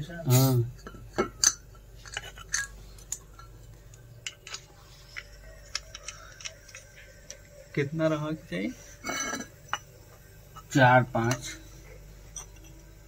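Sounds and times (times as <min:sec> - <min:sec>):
metallic clinks of brass fittings: 0:12.3 - 0:12.8.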